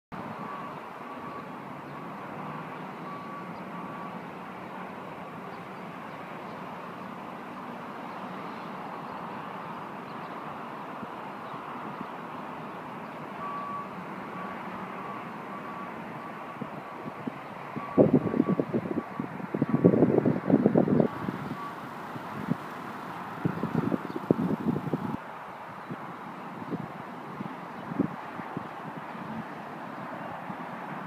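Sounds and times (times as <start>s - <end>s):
distant road traffic hum: 0.1s - 31.0s
faint repeating beep: 3.0s - 4.1s, 13.4s - 15.9s.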